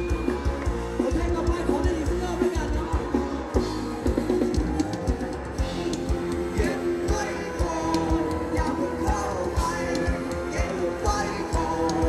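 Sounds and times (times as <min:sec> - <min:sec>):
bass guitar: 0:00.0 - 0:12.0
drum-kit beat: 0:00.0 - 0:12.0
guitar: 0:00.0 - 0:12.0
person singing: 0:05.7 - 0:12.0.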